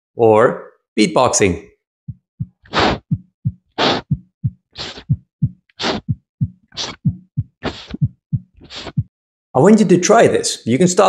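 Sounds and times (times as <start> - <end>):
beatboxed heartbeat thumps: 2.1 - 9.1.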